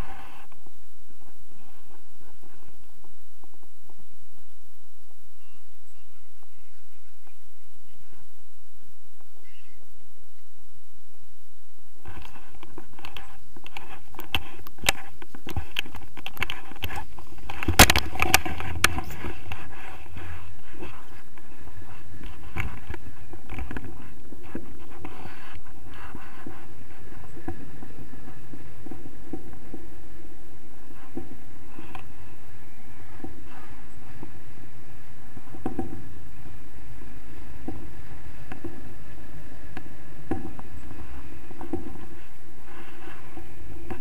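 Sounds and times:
wind rushing on microphone: 0:00.0 - 0:44.0.

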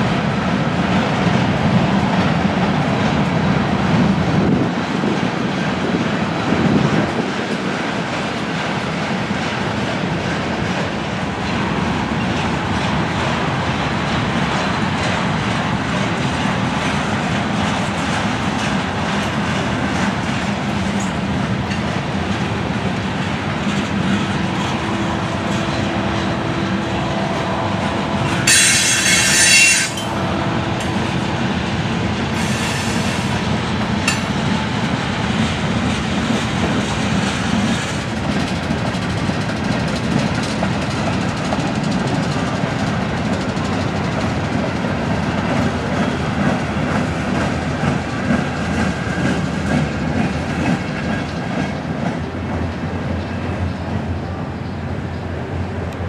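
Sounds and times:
train wheels rumbling on rails: 0:00.0 - 0:56.0
high metal squeal: 0:24.6 - 0:30.9.

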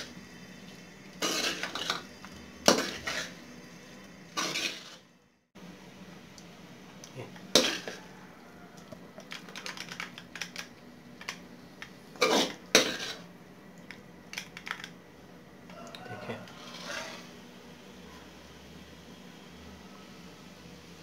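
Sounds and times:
metal spoon scraping a pan: 0:01.2 - 0:05.0, 0:07.5 - 0:08.1, 0:12.2 - 0:13.3, 0:16.4 - 0:17.4.

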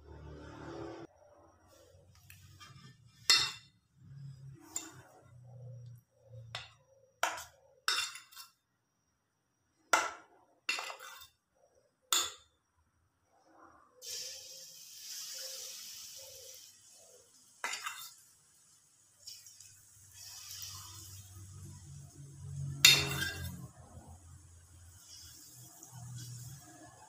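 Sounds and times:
metal spoon clinking on bowl: 0:06.6 - 0:08.5, 0:22.8 - 0:23.7.

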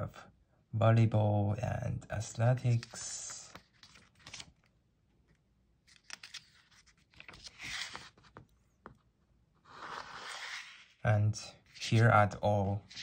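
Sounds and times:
paper rustling: 0:02.6 - 0:04.7, 0:05.3 - 0:09.1, 0:09.7 - 0:13.0.

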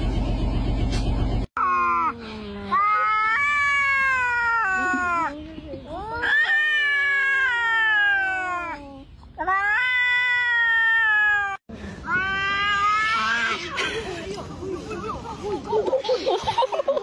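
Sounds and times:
cats yowling: 0:02.6 - 0:05.3, 0:06.0 - 0:13.7.

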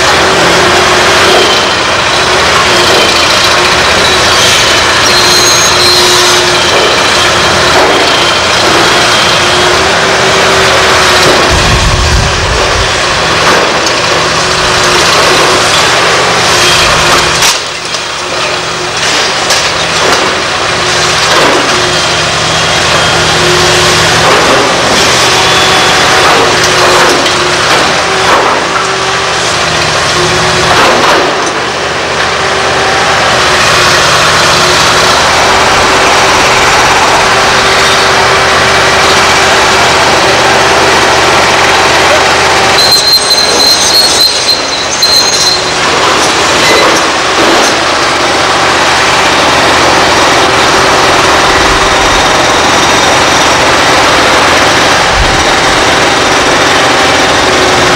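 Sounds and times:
excavator diesel engine: 0:00.0 - 0:57.9.

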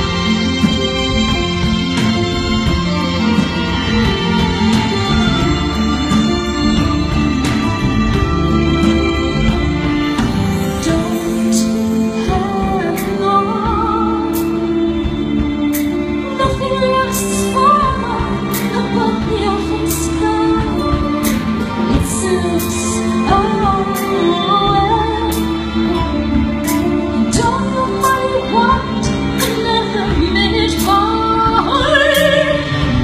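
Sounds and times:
cello: 0:00.0 - 0:33.0
keyboard: 0:00.0 - 0:33.0
violin: 0:00.0 - 0:33.0
woman singing a slow ballad: 0:10.7 - 0:33.0.

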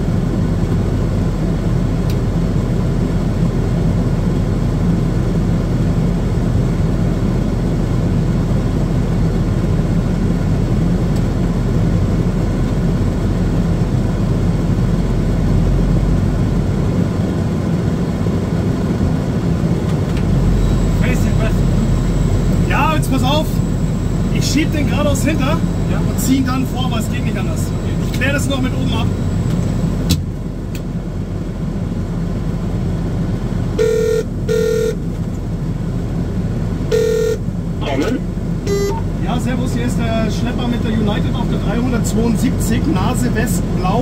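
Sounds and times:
tug engine idling: 0:00.1 - 0:44.0
telephone ringing beeps: 0:33.8 - 0:35.0, 0:36.9 - 0:37.4, 0:38.7 - 0:39.1.

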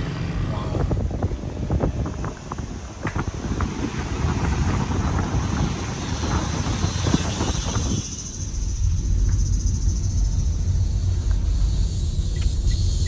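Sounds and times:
car road noise: 0:00.0 - 0:13.0
wind rushing over microphone: 0:00.0 - 0:13.0
low rumble inside car: 0:06.6 - 0:13.0.

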